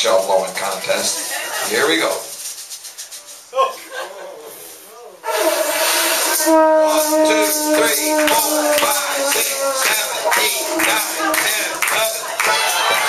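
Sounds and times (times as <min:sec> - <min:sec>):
conch shell blown: 0:05.2 - 0:11.6
crowd noise and shouting: 0:05.2 - 0:13.0.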